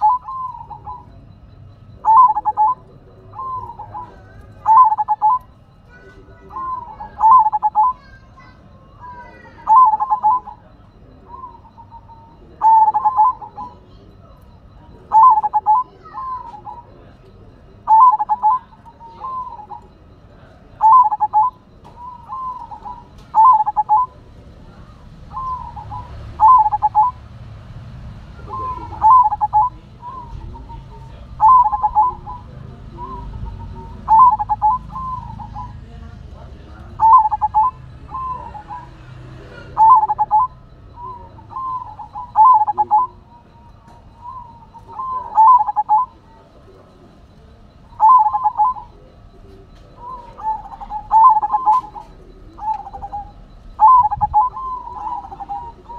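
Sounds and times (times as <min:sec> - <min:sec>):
dove cooing: 0:00.0 - 0:55.9.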